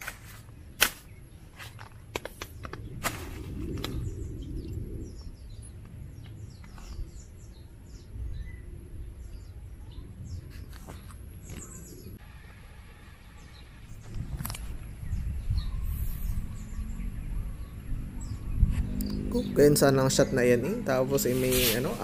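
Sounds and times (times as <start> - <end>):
small birds chirping: 0.2 - 22.0
low rumble: 2.6 - 10.4.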